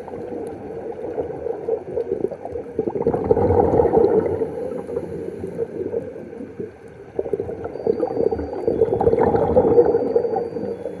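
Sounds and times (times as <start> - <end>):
underwater exhaled bubbles gurgling: 0.0 - 11.0.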